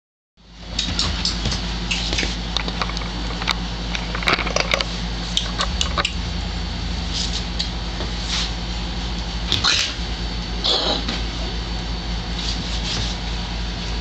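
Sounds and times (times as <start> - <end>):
steady low hum: 0.4 - 14.0.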